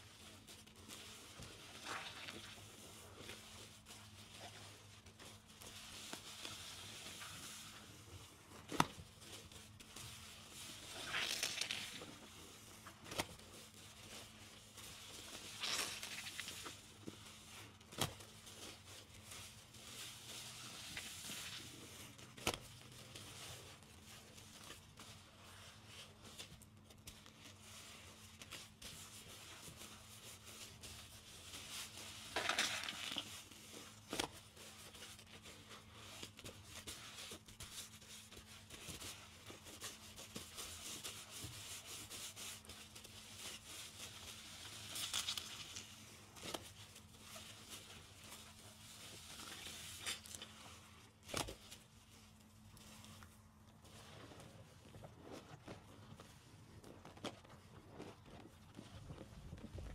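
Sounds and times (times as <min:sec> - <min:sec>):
wet sponges squelching: 0:00.3 - 0:13.2, 0:14.0 - 0:22.4.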